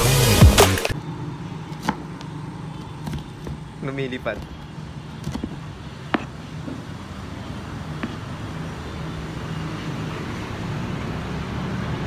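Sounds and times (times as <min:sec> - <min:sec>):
low rumble of traffic: 0:00.9 - 0:12.0
knife tapping on cutting board: 0:05.2 - 0:06.3, 0:08.0 - 0:08.2.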